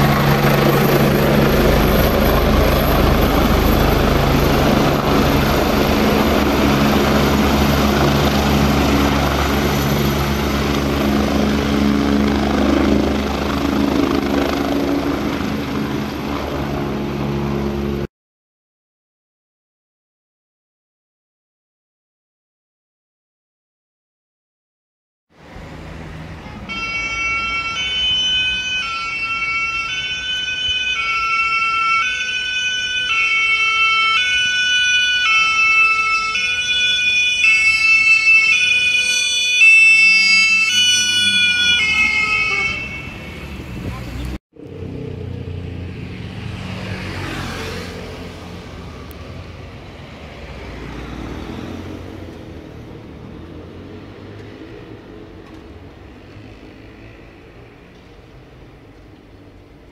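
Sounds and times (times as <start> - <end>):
two-tone emergency siren: 0.0 - 18.1, 26.4 - 44.2
vehicle engine rumble: 42.5 - 59.9
vehicle passing whoosh: 42.9 - 58.6.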